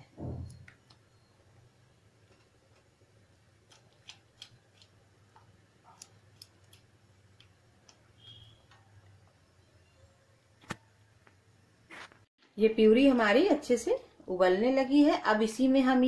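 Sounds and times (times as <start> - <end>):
puree popping while stirred: 2.2 - 9.2.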